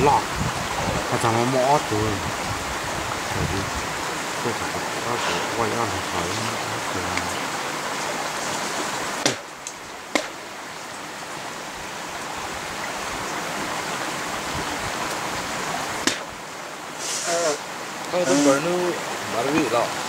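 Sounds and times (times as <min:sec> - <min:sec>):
sharp knocks: 0:09.2 - 0:09.5, 0:10.1 - 0:10.4, 0:16.0 - 0:16.3.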